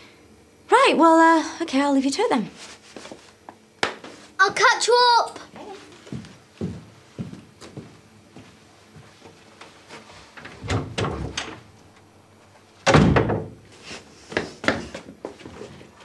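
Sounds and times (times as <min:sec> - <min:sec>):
door slamming: 0:10.6 - 0:11.6, 0:12.8 - 0:13.6.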